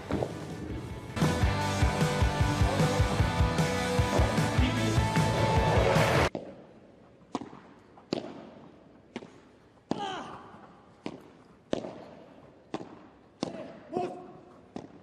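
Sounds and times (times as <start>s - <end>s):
ball struck with rackets: 7.3s - 10.0s, 11.0s - 13.8s, 14.7s - 15.0s.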